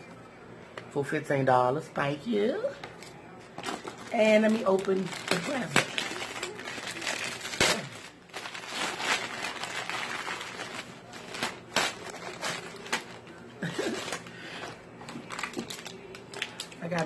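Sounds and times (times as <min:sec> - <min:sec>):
wrapping paper tearing and crumpling: 0:03.6 - 0:17.0.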